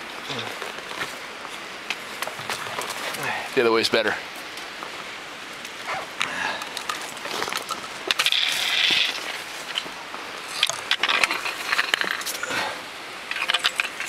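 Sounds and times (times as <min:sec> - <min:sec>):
pole and boots clicking on rock: 0:00.2 - 0:03.3, 0:05.6 - 0:12.6.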